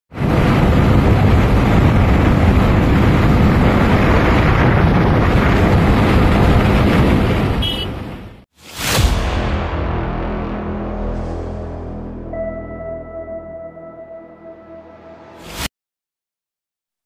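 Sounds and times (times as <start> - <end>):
wind rush on microphone: 0.1 - 8.4.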